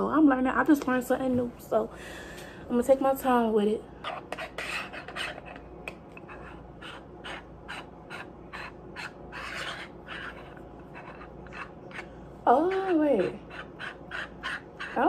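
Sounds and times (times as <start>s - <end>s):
fingers rubbing on camera: 6.2s - 12.1s.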